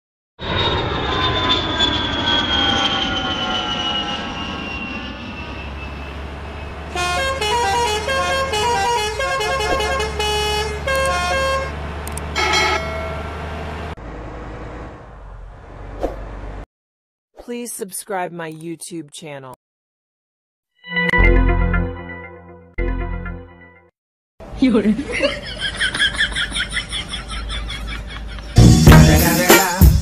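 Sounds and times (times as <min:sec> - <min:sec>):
low engine hum: 0:00.4 - 0:16.7
truck horn: 0:06.6 - 0:13.4
musical horn tune: 0:06.9 - 0:11.8, 0:12.4 - 0:13.2.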